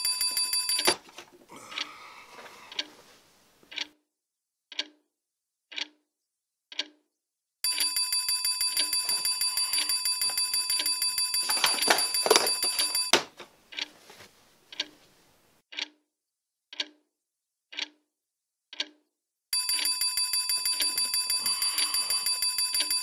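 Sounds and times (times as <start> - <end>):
alarm clock bell ringing: 0.0 - 1.0, 7.6 - 13.2, 19.6 - 23.0
hand slapping alarm clock: 0.0 - 1.2, 7.7 - 13.9, 19.6 - 23.0
clock ticking: 0.0 - 3.0, 3.6 - 4.0, 4.7 - 5.0, 5.7 - 6.0, 6.7 - 7.0, 7.6 - 13.9, 14.7 - 15.0, 15.7 - 16.0, 16.7 - 17.0, 17.7 - 18.0, 18.7 - 19.0, 19.6 - 23.0.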